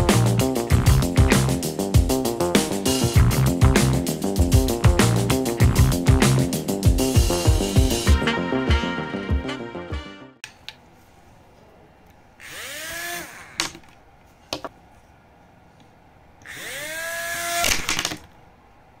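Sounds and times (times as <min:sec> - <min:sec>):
small electric motor whine: 0:12.4 - 0:13.6, 0:16.4 - 0:17.9.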